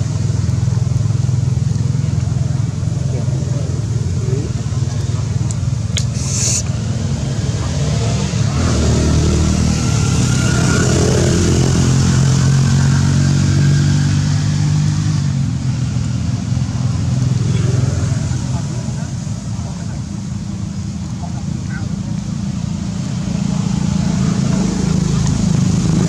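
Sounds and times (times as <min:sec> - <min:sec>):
vehicle engine running: 0:00.0 - 0:26.0.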